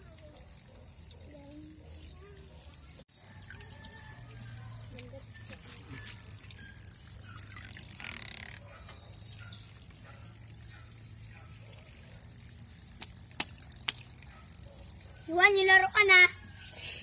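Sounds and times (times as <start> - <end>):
water splashing and trickling: 0.0 - 17.0.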